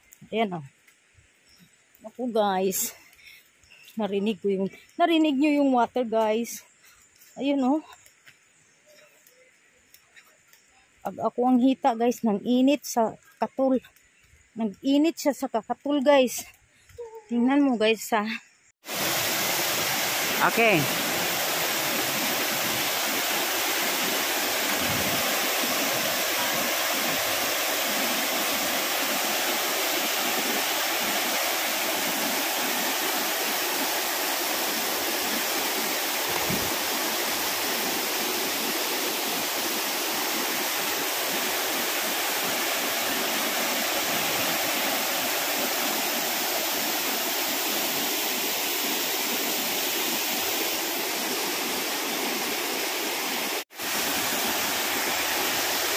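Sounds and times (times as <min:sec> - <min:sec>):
waterfall rushing over rocks: 0:18.8 - 0:55.9.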